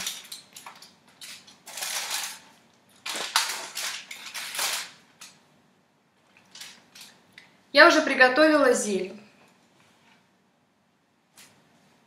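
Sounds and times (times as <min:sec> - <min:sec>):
aluminium foil crinkling: 0:00.0 - 0:05.4, 0:06.2 - 0:07.2.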